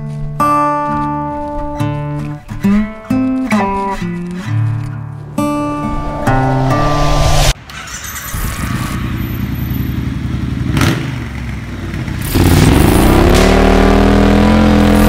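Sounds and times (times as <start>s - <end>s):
motorcycle engine revving: 8.8s - 15.0s.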